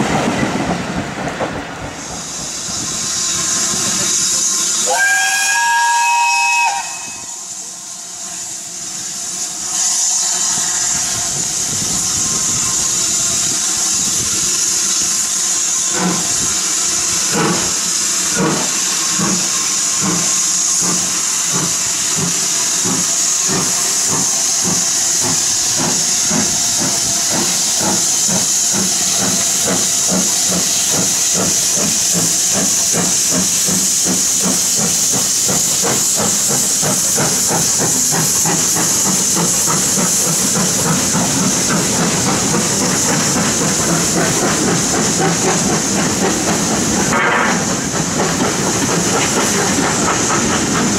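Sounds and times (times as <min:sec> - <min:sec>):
steam hissing: 0:00.0 - 0:50.9
steam locomotive exhaust beats: 0:00.0 - 0:50.9
steam whistle: 0:04.8 - 0:07.6.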